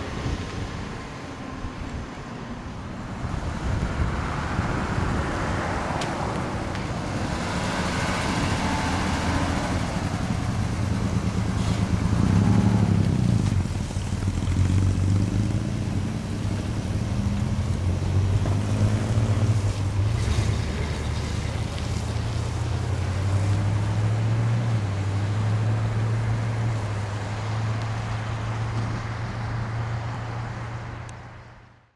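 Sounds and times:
wind noise on microphone: 0.0 - 23.1
car engines pulling away: 0.0 - 31.8.

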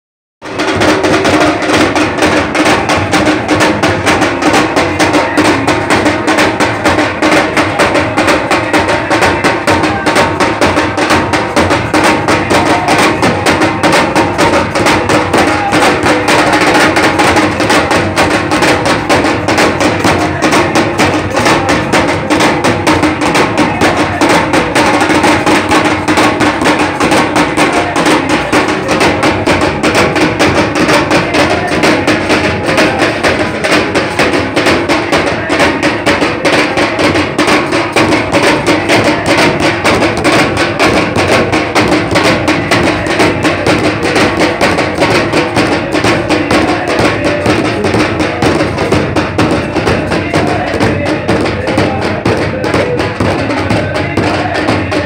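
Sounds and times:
frame drums beaten rapidly: 0.4 - 55.0.

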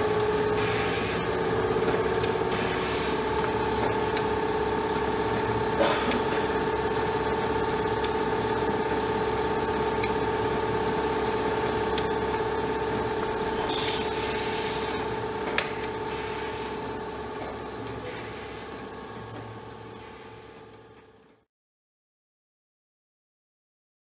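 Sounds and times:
machine hum with whine: 0.0 - 21.5.

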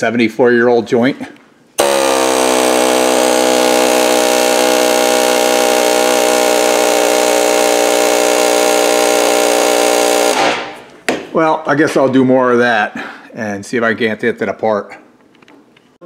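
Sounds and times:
pneumatic air hammer buzzing: 1.8 - 10.9.

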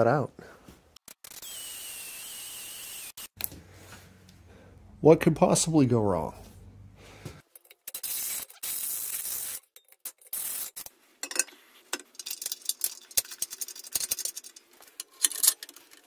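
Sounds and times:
drill cutting steel: 1.1 - 3.4
light metal clinks and scrapes: 11.2 - 16.0.

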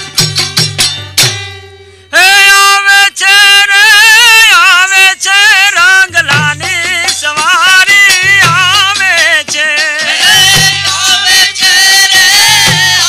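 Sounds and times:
drum strokes: 0.0 - 1.7, 6.1 - 13.0.

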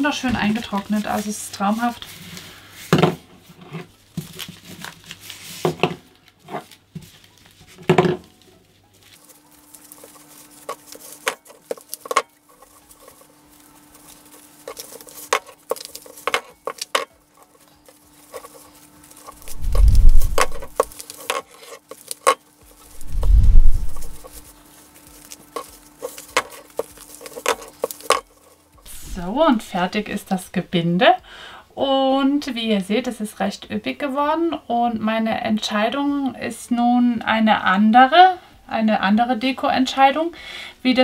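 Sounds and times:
dried flowers rustling and crackling: 0.0 - 2.9, 3.9 - 30.5
wire clicks and crinkles: 3.5 - 30.2.

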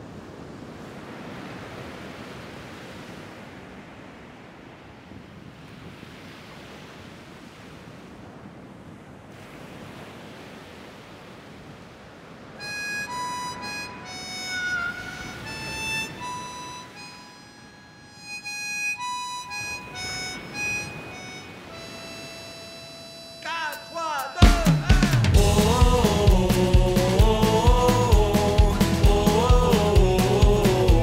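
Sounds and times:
surf washing on a beach: 0.0 - 31.0
slow instrumental melody: 12.6 - 31.0.

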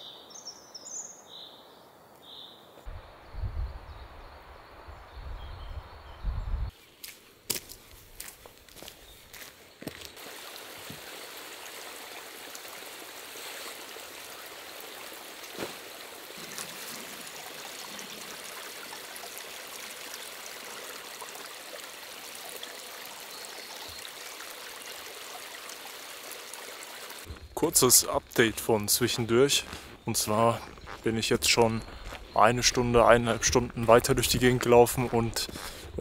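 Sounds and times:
water hissing: 10.2 - 32.4.

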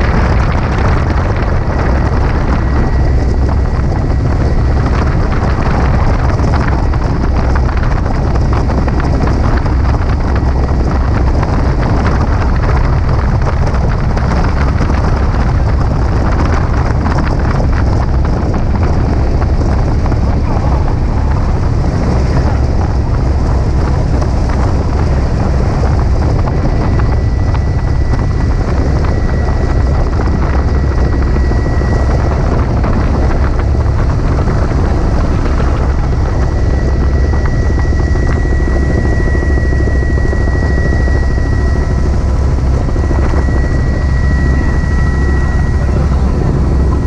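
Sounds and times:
helicopter engine and rotor drone: 0.0 - 47.0
rushing air: 0.0 - 47.0
thin high whine: 16.3 - 47.0.

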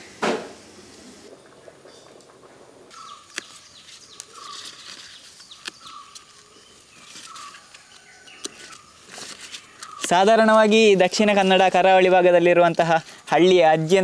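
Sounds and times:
birds calling: 2.9 - 12.1
leaf stems snapping: 2.9 - 13.1.

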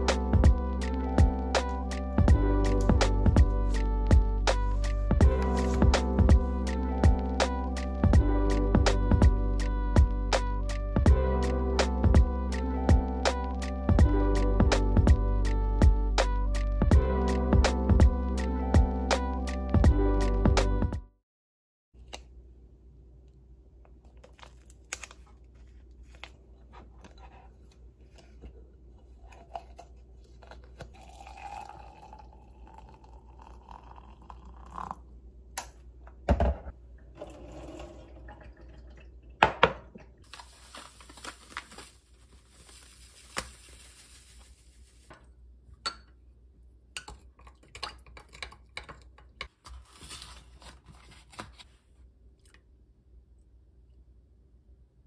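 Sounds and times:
packet handling: 24.0 - 26.4, 40.3 - 45.1
water pouring: 30.9 - 35.0, 37.1 - 41.9.

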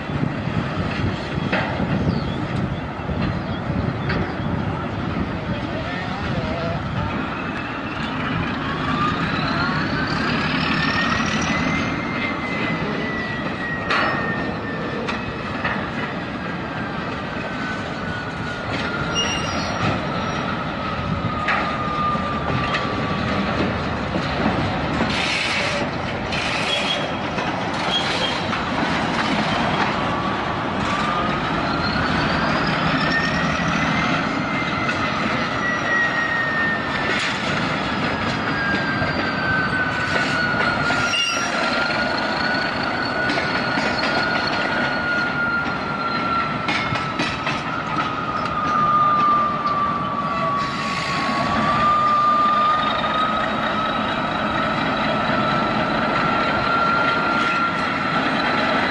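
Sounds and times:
train rolling rumble: 0.0 - 58.9
train wheels squealing: 0.0 - 58.9
wheels clattering over rail joints: 21.2 - 50.2.

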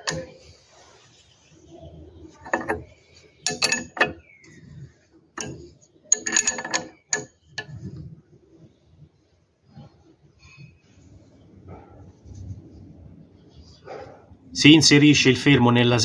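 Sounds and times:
spanner clinking on metal nut: 0.0 - 0.4, 2.3 - 8.0.

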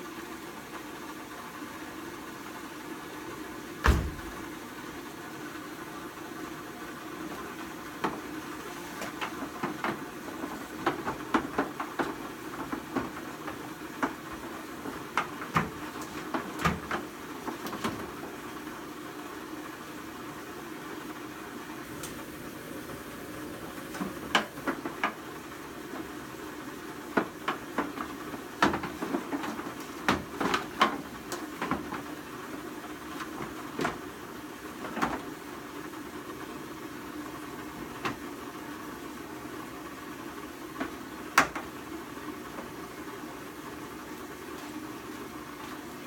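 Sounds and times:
equipment knocking on metal floor: 3.8 - 4.4.

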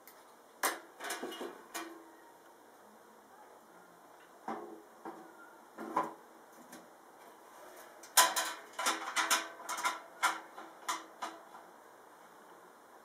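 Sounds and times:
metallic clanks and rattles: 7.9 - 11.6.

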